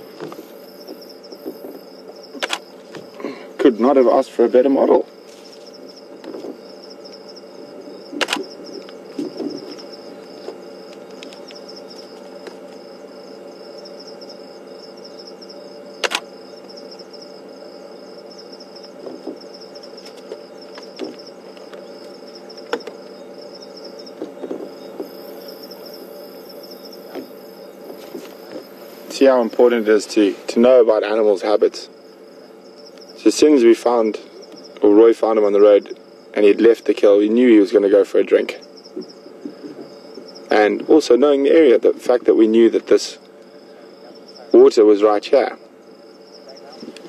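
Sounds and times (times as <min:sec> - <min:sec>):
crickets trilling: 0:00.0 - 0:47.0
low steady hum: 0:00.0 - 0:47.0
sharp clicks: 0:02.4 - 0:02.7, 0:08.2 - 0:09.0, 0:16.0 - 0:16.3.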